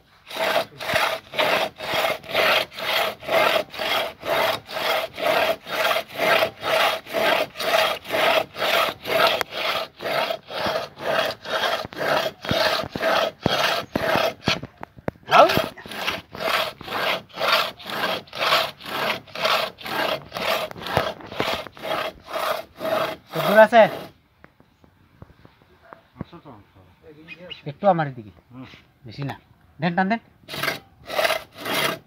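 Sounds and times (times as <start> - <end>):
hand saw cutting a log: 0.0 - 14.7, 15.3 - 24.1, 30.5 - 32.0.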